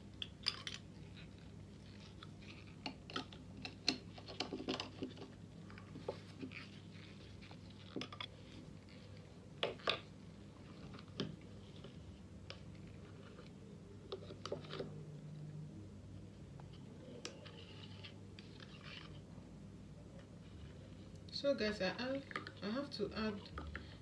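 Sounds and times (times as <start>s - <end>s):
low steady hum: 0.0s - 24.0s
plastic bottles clicking and rustling: 2.5s - 5.4s.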